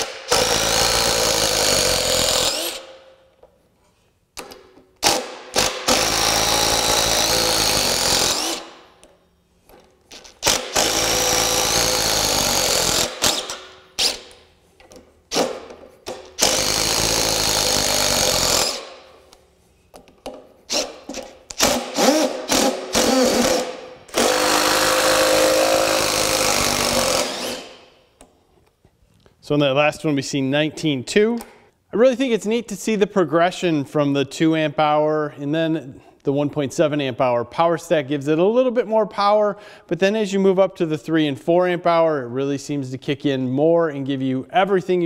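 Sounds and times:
impact driver hammering: 4.4 - 8.7, 10.4 - 14.4, 15.3 - 19.0, 20.3 - 27.7.

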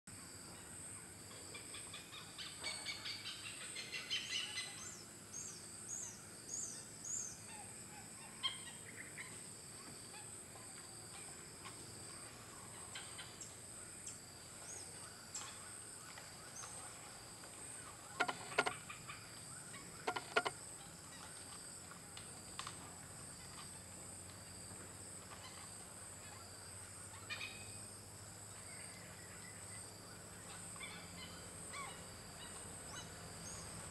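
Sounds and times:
insect drone: 0.1 - 33.9
birds chirping: 18.2 - 18.7, 20.1 - 20.5
harsh bird calls: 18.2 - 18.7.

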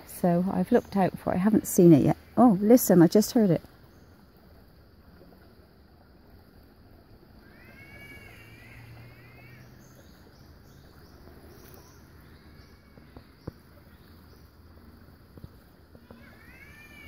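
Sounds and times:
catbird wailing: 7.4 - 10.2
small birds chirping: 7.5 - 17.0.

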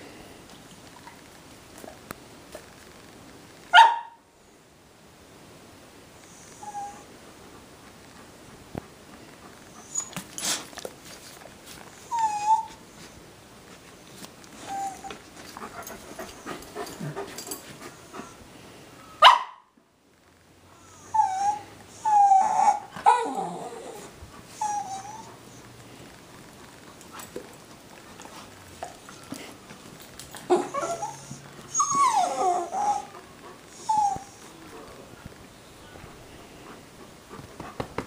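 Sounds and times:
dogs whining: 6.3 - 7.1, 9.7 - 10.7, 12.0 - 13.1, 14.6 - 18.4, 20.8 - 25.8, 28.8 - 34.8.

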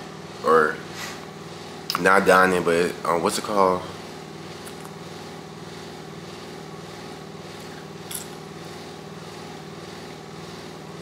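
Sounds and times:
air conditioning hum: 0.0 - 11.0.

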